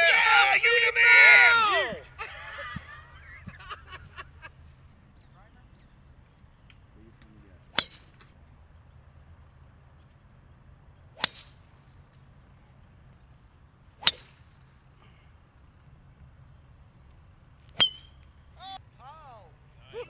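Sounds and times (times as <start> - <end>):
golf club striking ball: 7.7 - 8.4, 11.2 - 11.8, 14.0 - 14.7, 17.6 - 18.5.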